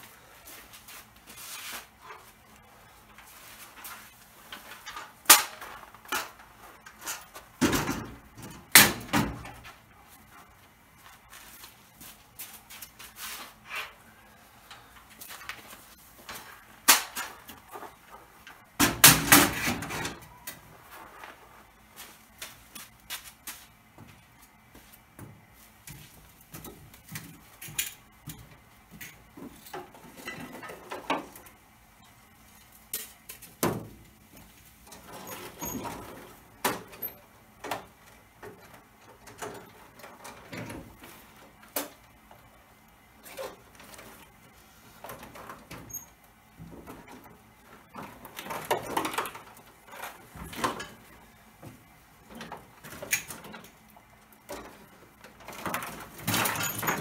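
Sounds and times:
footsteps on truck bed: 5.7s - 13.7s, 20.6s - 30.1s
metal ramp clattering: 55.4s - 57.0s.

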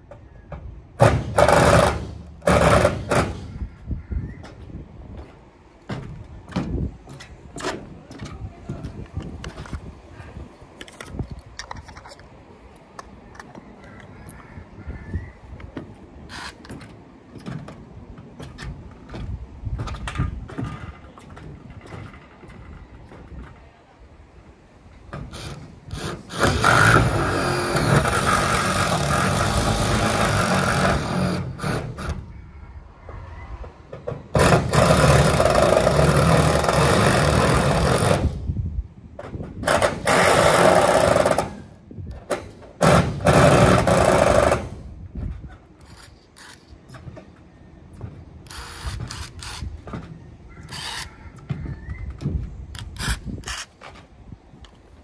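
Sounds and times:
power drill driving screws: 25.3s - 32.2s, 48.4s - 49.7s, 50.7s - 51.1s.

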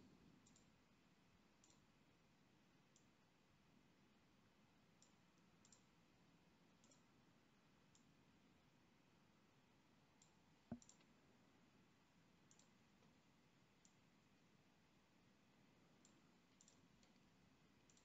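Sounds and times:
faint computer mouse clicks: 0.4s - 0.7s, 1.6s - 1.9s, 5.0s - 5.9s, 6.8s - 7.1s, 10.2s - 11.1s, 12.5s - 13.2s, 16.0s - 18.0s.

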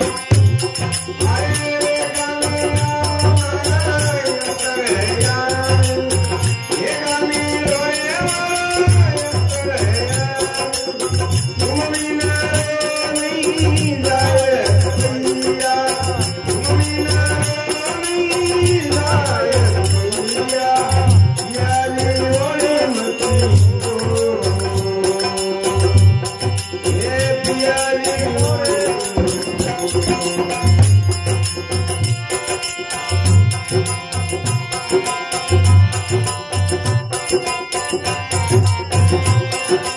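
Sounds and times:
man singing through microphone: 0.0s - 31.8s
jingling percussion: 0.0s - 39.9s.

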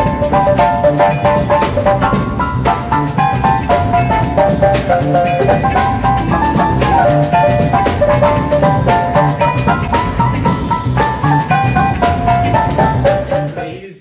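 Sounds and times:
drum-kit groove: 0.0s - 14.0s
funk band playing: 0.0s - 14.0s.

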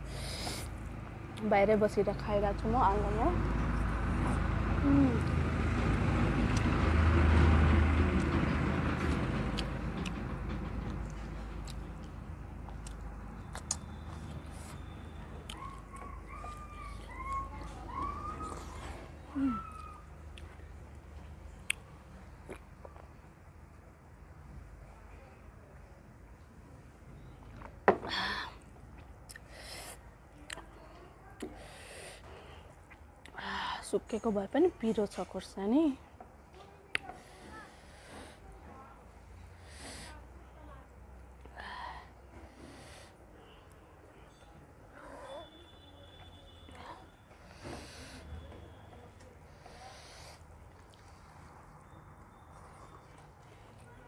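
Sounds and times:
passing vehicle engine rumble: 0.0s - 25.2s
chewing clicks: 10.9s - 14.4s.

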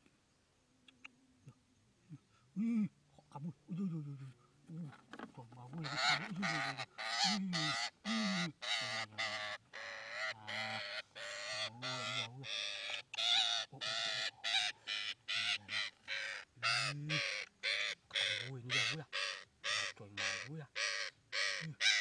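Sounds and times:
parakeet squawking loudly: 5.8s - 22.0s.

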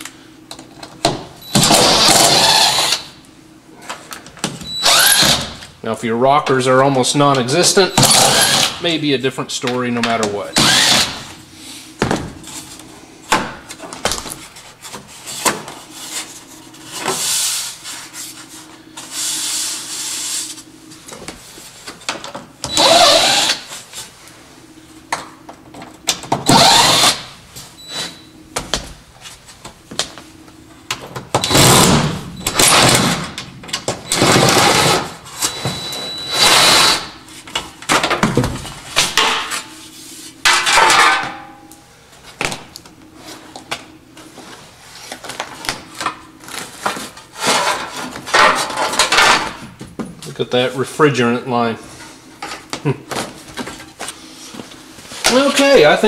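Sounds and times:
cordless drill running: 1.6s - 3.1s, 4.8s - 5.5s, 8.0s - 8.8s, 10.6s - 11.2s, 22.7s - 23.6s, 26.5s - 27.3s, 36.4s - 37.1s.

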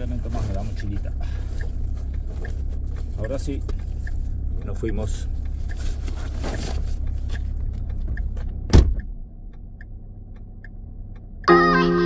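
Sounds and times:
steady low rumble: 0.0s - 12.0s
car door slamming: 8.7s - 9.1s.

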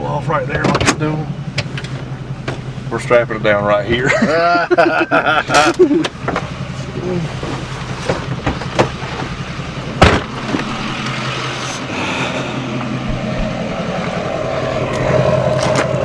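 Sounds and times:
vehicle engine idling: 0.0s - 16.0s
sharp knocks: 10.0s - 10.7s
loud bang: 10.0s - 11.1s.

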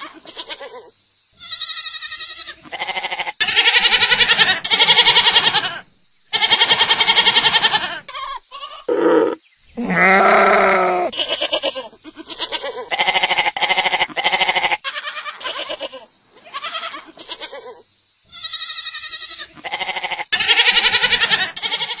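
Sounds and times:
goats bleating: 6.6s - 15.8s.

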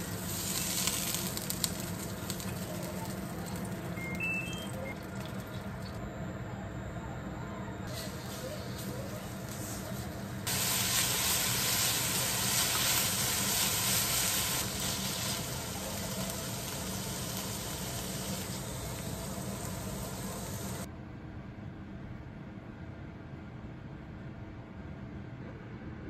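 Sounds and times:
food sizzling in frying pan: 0.0s - 5.6s, 7.9s - 20.9s.

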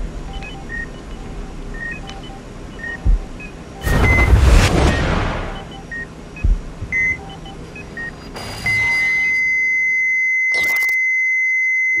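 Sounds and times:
continuous flatline beep: 0.0s - 12.0s
short monitor beeps: 1.8s - 12.0s
burst of noise: 3.8s - 5.7s.

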